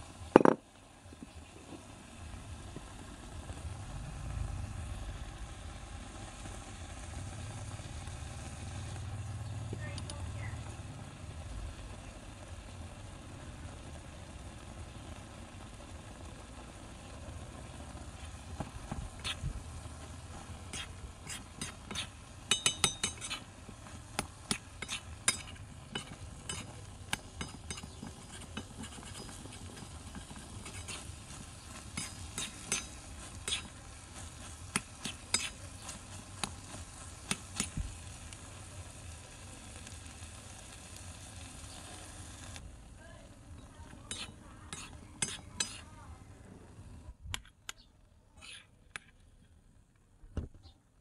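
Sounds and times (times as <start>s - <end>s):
food sizzling: 0.0s - 46.3s
metal spatula scraping a wok: 20.2s - 37.8s, 43.9s - 45.9s, 48.4s - 48.7s.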